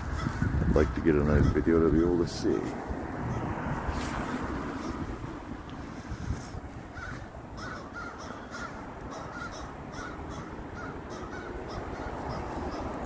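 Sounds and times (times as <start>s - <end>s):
crows cawing: 0.0s - 1.8s, 5.9s - 13.0s.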